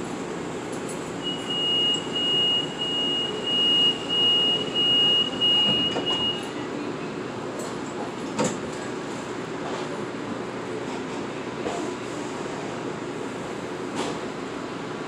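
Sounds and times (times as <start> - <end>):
railcar hum: 0.0 - 15.0
high electronic door warning tone: 1.2 - 6.4.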